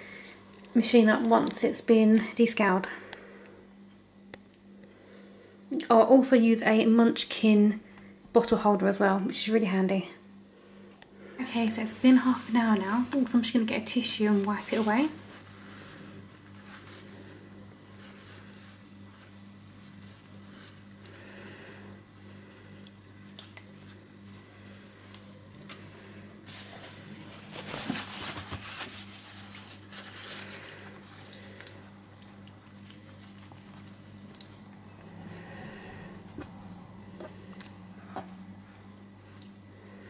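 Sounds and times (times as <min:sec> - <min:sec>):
low steady hum: 0:00.0 - 0:40.0
tissue scrubbing a heating plate: 0:11.4 - 0:36.9.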